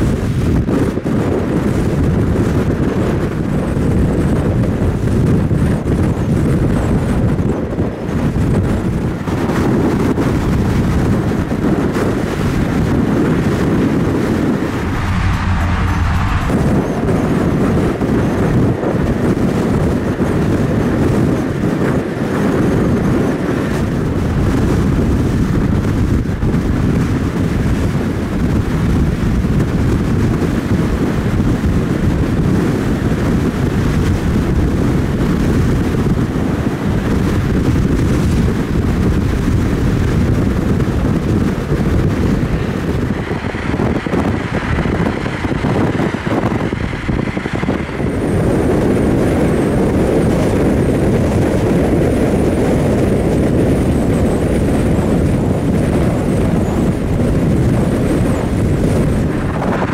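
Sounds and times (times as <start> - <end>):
road and wind noise: 0.0 - 59.9
wind buffeting microphone: 0.0 - 59.9.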